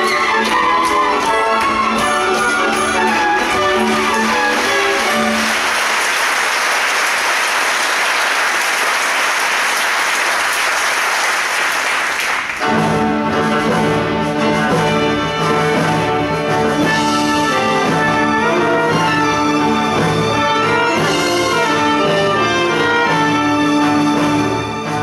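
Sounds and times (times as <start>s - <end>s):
band music with brass: 0.0s - 6.1s, 12.4s - 25.0s
audience applause: 1.0s - 12.8s.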